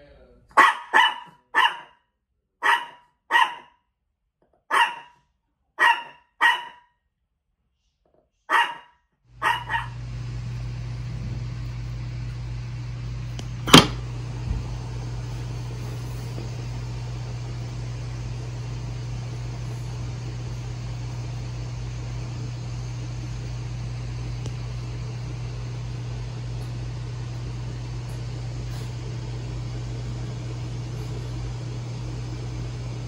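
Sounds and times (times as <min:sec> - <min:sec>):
small dog yapping: 0:00.6 - 0:01.9, 0:02.6 - 0:03.7, 0:04.7 - 0:05.2, 0:05.8 - 0:06.8, 0:08.5 - 0:09.9
low hum: 0:09.3 - 0:33.0.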